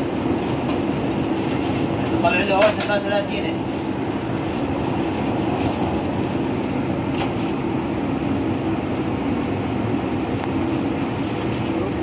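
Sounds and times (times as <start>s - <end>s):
kitchen equipment hum: 0.0s - 12.0s.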